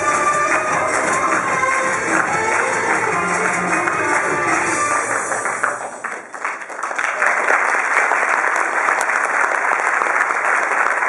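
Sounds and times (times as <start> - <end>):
band music: 0.0 - 6.0
audience applause: 0.0 - 11.0.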